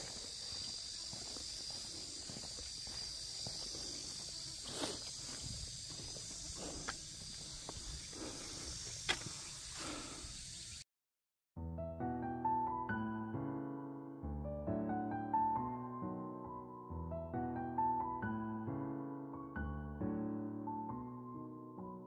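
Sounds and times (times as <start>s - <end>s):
footsteps on trail: 0.0s - 10.7s
high insect buzzing: 0.0s - 10.8s.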